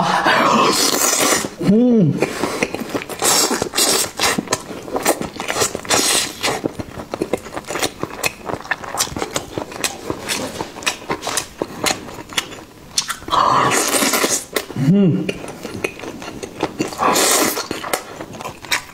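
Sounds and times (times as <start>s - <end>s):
wet chewing clicks and smacks: 2.6s - 13.3s, 15.3s - 18.9s.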